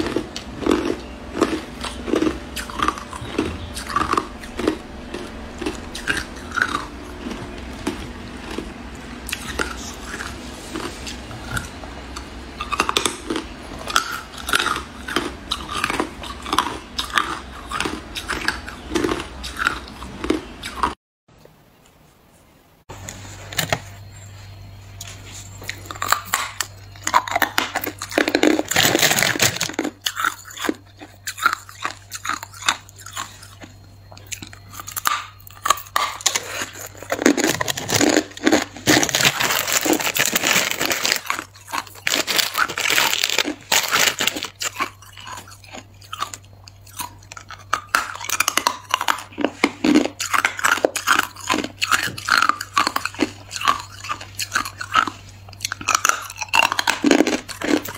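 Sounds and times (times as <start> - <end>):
faint low hum: 0.0 - 57.9
person crunching ice: 34.3 - 57.9.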